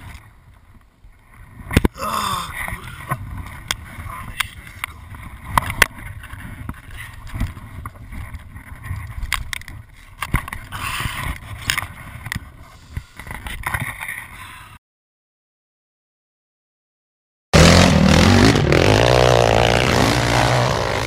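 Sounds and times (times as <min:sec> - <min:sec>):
wind rumbling on microphone: 0:00.0 - 0:14.8.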